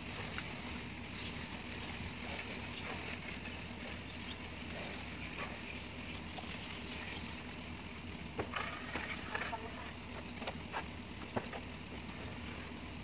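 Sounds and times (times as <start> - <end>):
plastering tools scraping render: 0.0 - 12.8
steady background noise: 0.0 - 13.0.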